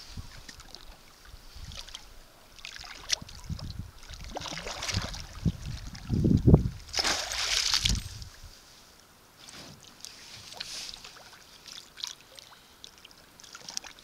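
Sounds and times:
fish splashing in water: 2.6s - 5.8s, 6.8s - 8.1s
water slapping: 2.6s - 8.1s.

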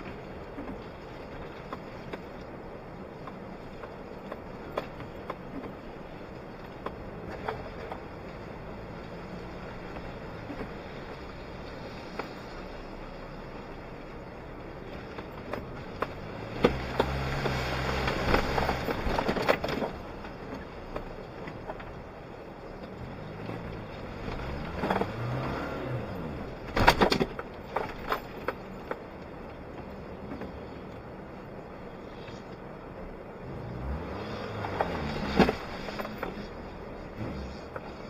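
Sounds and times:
vehicle knocks and rattles: 0.0s - 13.0s, 14.7s - 31.0s
car engine revving off-road: 0.0s - 38.0s.

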